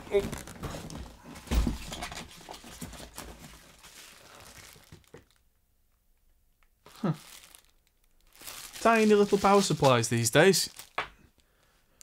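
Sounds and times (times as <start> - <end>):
plastic packaging crinkling: 1.8 - 5.4, 6.8 - 11.1.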